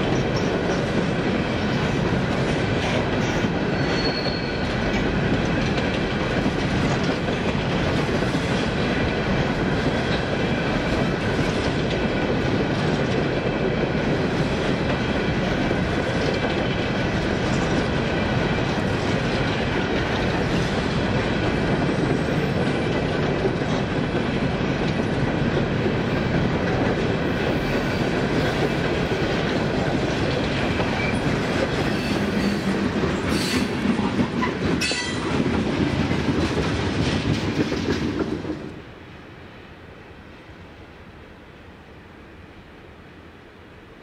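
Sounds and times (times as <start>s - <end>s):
train rumble: 0.0s - 44.0s
high wheel squeals: 3.7s - 4.7s
wheels clicking over rail joints: 16.0s - 38.7s.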